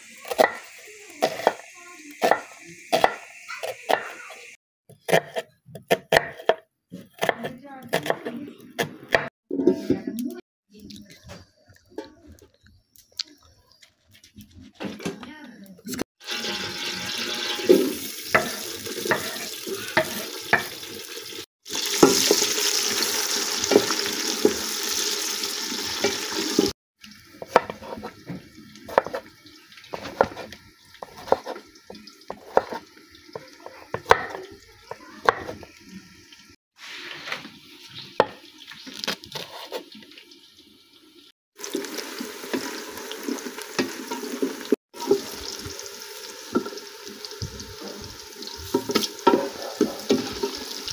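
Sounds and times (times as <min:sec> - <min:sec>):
onions sizzling in hot oil: 0:00.0 - 0:04.6, 0:16.2 - 0:50.9.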